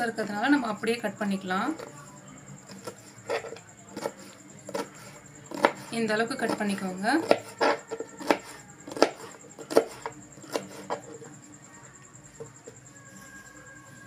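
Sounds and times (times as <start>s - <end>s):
knife chopping on cutting board: 2.7s - 11.1s.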